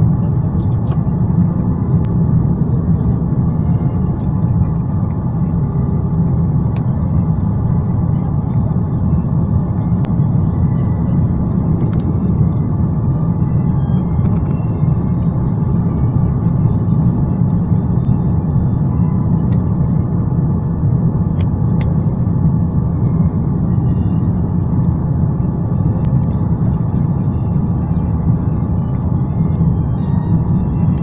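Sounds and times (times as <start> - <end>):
vehicle rumble from inside: 0.0 - 31.0.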